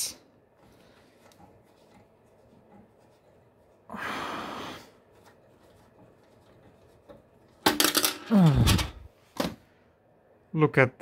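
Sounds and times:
man sighing: 8.2 - 9.1.

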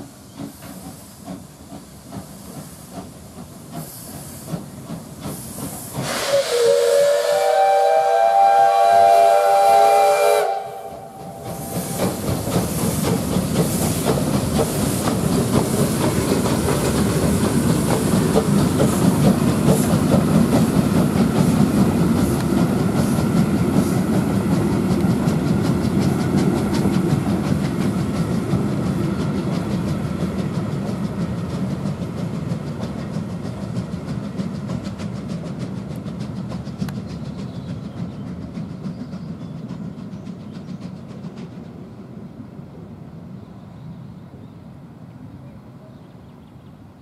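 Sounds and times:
train wheels clicking over rail joints: 0.0 - 42.3
steam locomotive going by: 0.0 - 47.0.

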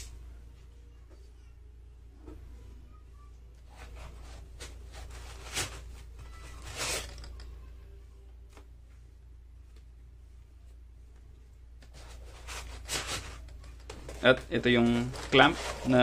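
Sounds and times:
plastic scraping against foam: 11.9 - 16.0.

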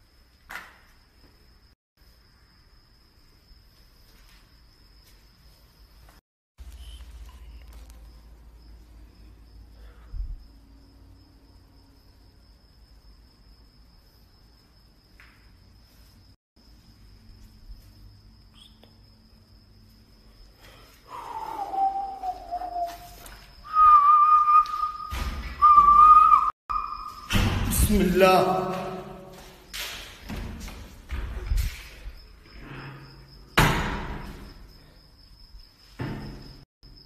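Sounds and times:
high insect trill: 0.0 - 37.0
steady whistle-like tone: 21.1 - 27.3
whistle-like tone sliding down: 21.3 - 27.3.

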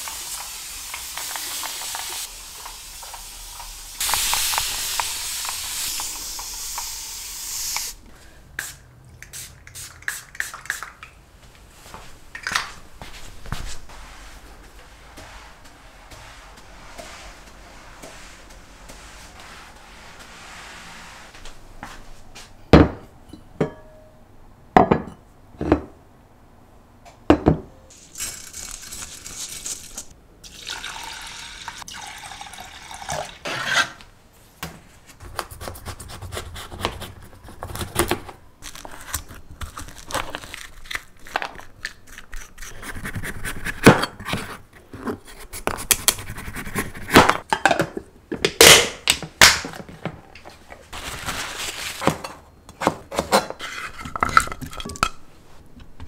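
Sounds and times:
hiss and rubbing: 0.0 - 8.0
glass containers clinking: 53.6 - 55.2.

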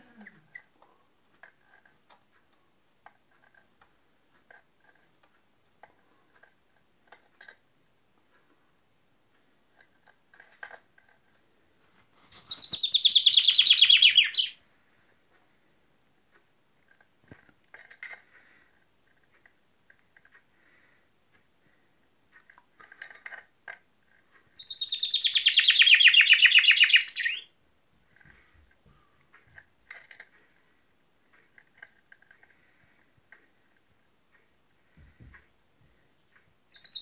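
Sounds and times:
chaffinch singing: 12.4 - 14.6, 24.6 - 27.5, 36.7 - 37.0
faint short bird notes and clicks: 12.5 - 14.6, 24.6 - 27.5, 36.7 - 37.0.

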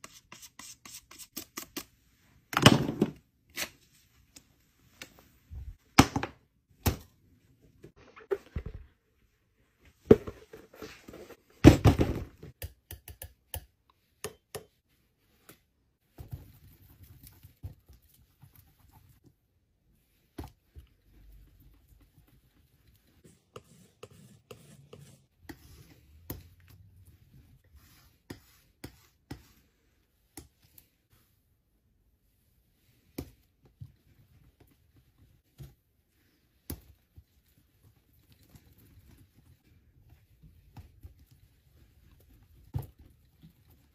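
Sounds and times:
palette knife scraping and tapping: 23.2 - 26.6, 27.9 - 29.6.

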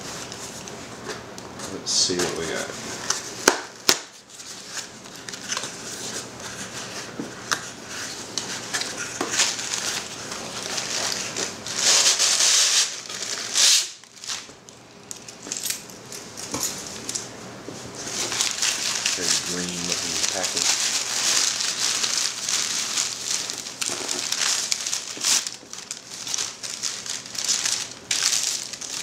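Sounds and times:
paper packing crinkling: 0.1 - 29.0.

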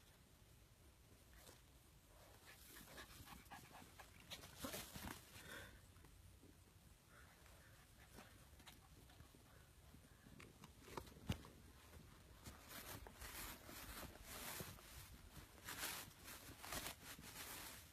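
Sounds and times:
scratchy rustles: 10.8 - 17.9.

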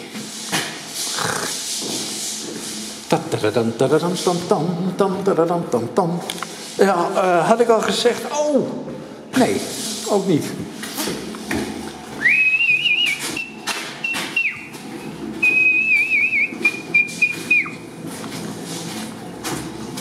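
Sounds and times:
footsteps: 0.0 - 3.4, 9.6 - 20.0
man whistling: 12.2 - 14.7, 15.4 - 17.8.

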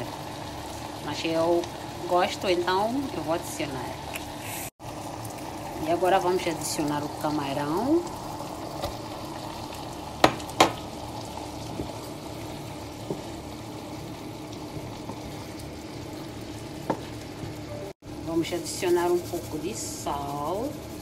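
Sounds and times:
sauce simmering in a frying pan: 0.0 - 21.0
wooden spoon stirring: 14.6 - 15.7, 18.6 - 21.0.

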